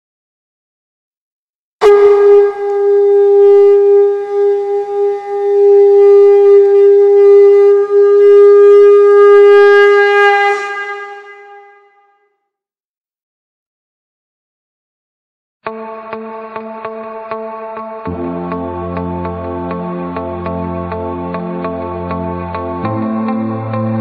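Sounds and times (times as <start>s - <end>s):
conch shell blown: 1.8s - 12.3s.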